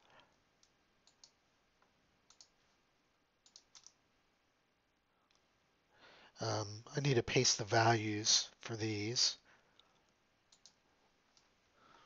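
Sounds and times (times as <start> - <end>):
mouse and keyboard clicks: 2.3 - 2.5, 3.4 - 4.0.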